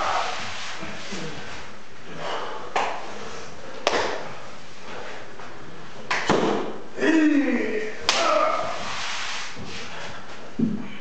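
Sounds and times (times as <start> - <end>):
slaps of bare skin: 3.8 - 4.2, 6.1 - 6.8.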